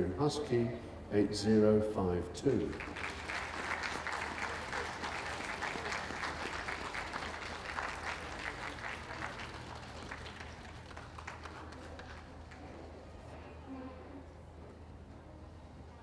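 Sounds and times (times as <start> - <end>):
audience applauding: 2.7 - 12.7.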